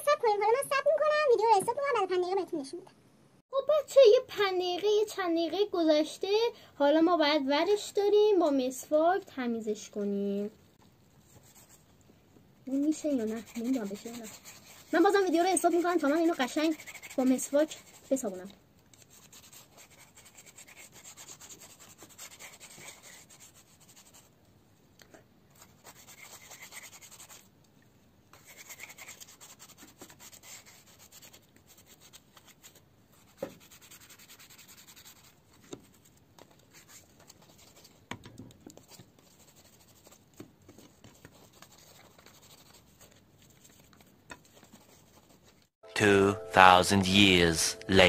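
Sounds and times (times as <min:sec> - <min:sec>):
toothbrush scrubbing plastic: 0:12.7 - 0:18.4, 0:19.0 - 0:24.3, 0:25.5 - 0:27.5, 0:28.3 - 0:38.1, 0:38.7 - 0:45.6.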